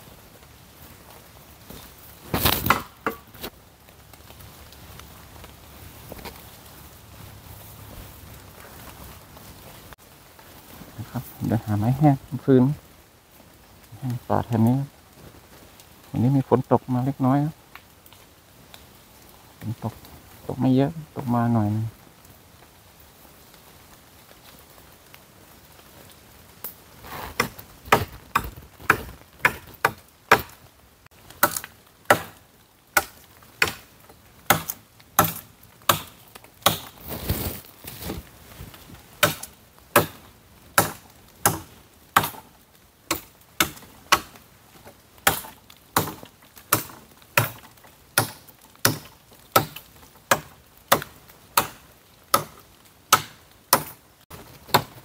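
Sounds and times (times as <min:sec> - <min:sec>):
dry wood being chopped: 0:02.3 - 0:03.5, 0:27.1 - 0:30.6, 0:31.4 - 0:32.4, 0:33.0 - 0:33.9, 0:34.5 - 0:38.2, 0:39.2 - 0:40.2, 0:40.8 - 0:42.5, 0:43.1 - 0:44.4, 0:45.2 - 0:55.0.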